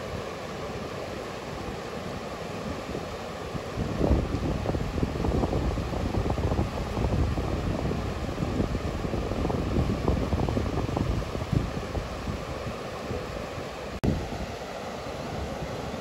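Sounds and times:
wind buffeting microphone: 2.7 - 14.6.

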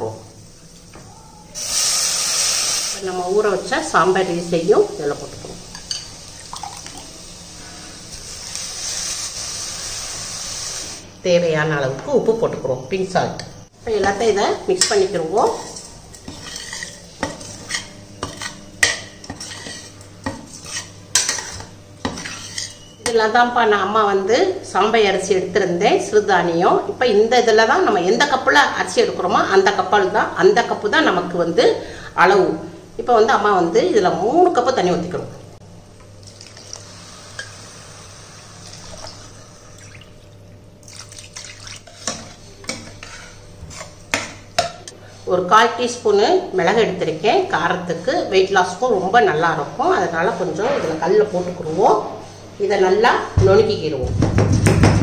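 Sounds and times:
water pouring into a pot: 6.4 - 7.2, 36.2 - 37.6, 38.3 - 41.9
spoon scraping steel pot: 14.8 - 23.0, 41.8 - 45.0.

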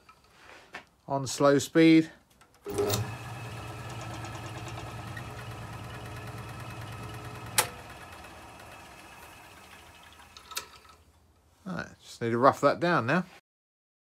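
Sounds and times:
wood lathe motor running: 2.7 - 11.0
lathe switch click: 7.4 - 7.8.

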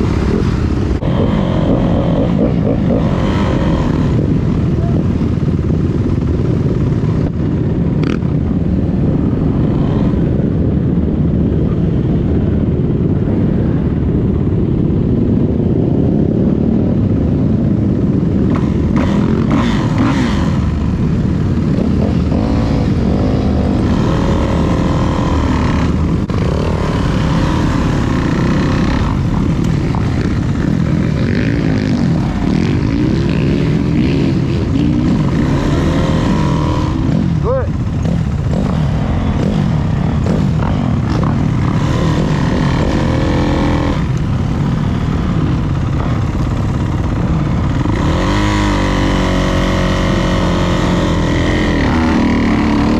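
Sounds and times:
dirt bike engine revving: 0.0 - 8.4, 18.0 - 52.9.

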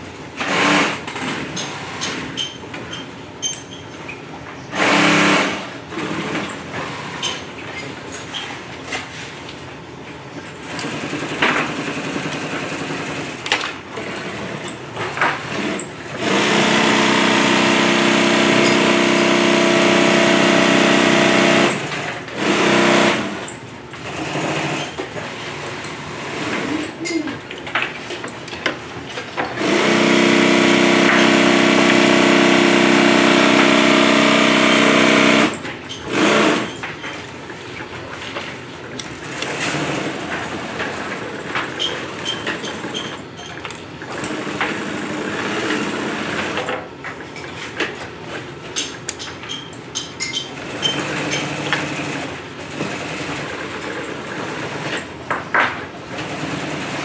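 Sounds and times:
industrial sewing machine stitching: 0.4 - 2.3, 4.7 - 7.3, 10.6 - 27.0, 29.5 - 36.8, 39.2 - 43.1, 44.1 - 46.7, 50.5 - 55.2, 56.0 - 57.0.

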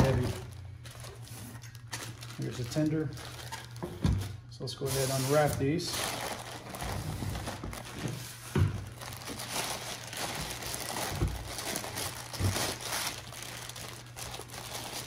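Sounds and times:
plastic wrapping crinkling: 0.0 - 15.0.

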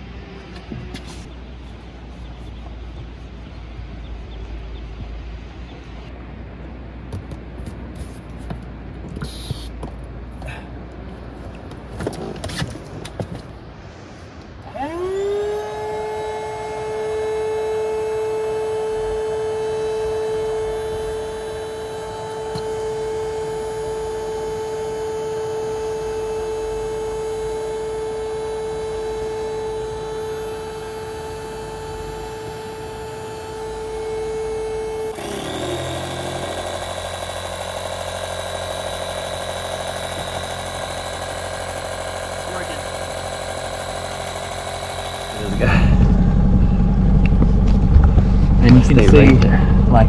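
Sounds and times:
electric air pump running: 14.6 - 50.0.

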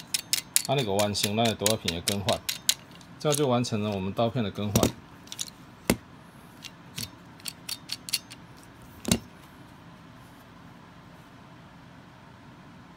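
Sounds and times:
plastic tool clicking and knocking: 0.0 - 4.0.

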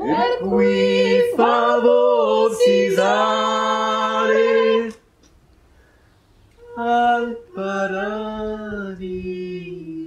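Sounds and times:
voices singing held notes: 0.0 - 5.1.

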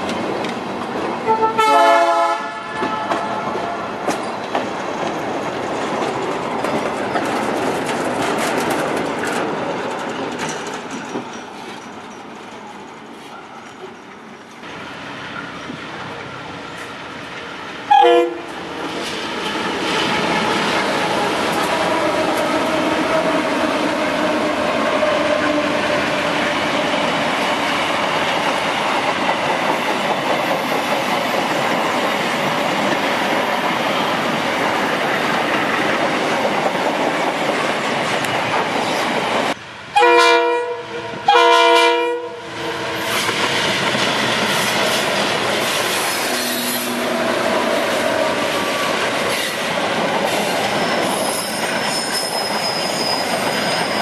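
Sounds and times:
freight train rolling past: 0.0 - 54.0
locomotive horn blasts: 1.3 - 3.9, 17.9 - 18.6, 40.0 - 43.1
wagons clacking over rail joints: 4.0 - 14.6.

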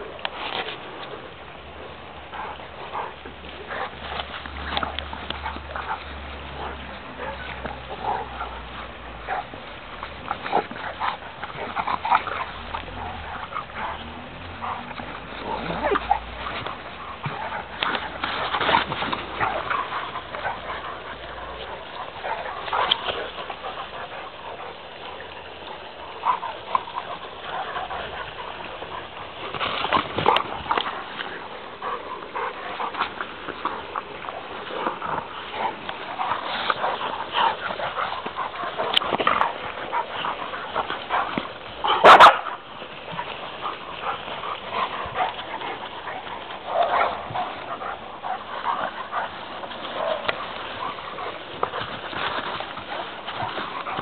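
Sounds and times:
dogs yipping and whimpering: 2.4 - 29.5.

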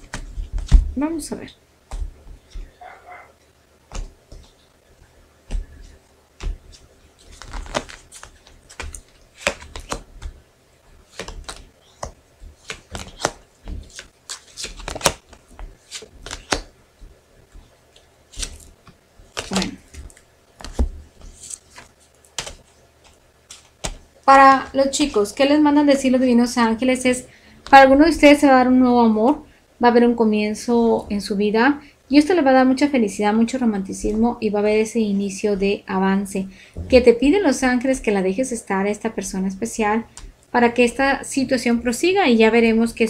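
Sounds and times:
cards clicking and tapping: 5.5 - 10.4, 11.1 - 16.7, 18.0 - 24.0.

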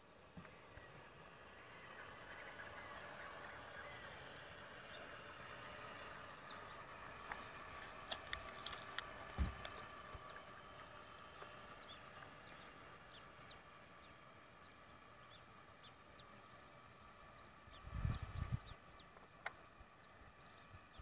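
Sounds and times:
faint birds chirping: 0.0 - 21.0
faint steady hum: 0.0 - 21.0
low rumble on microphone: 17.7 - 19.0.

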